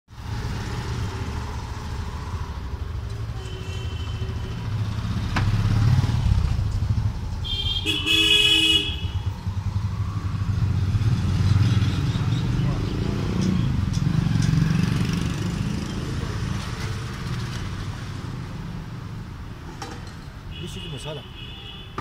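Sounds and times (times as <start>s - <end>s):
vehicle engines rumbling: 0.1s - 21.2s
car horn honking: 7.4s - 9.3s, 20.5s - 22.0s.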